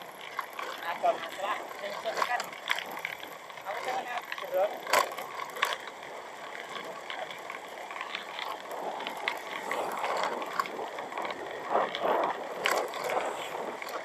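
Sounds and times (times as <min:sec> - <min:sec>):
wind and road noise: 0:00.0 - 0:14.0
small clicks and knocks: 0:01.8 - 0:06.0.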